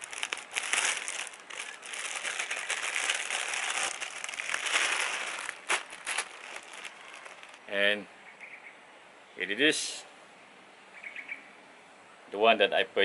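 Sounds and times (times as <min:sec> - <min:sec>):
plastic packaging crinkling: 0:00.0 - 0:07.7.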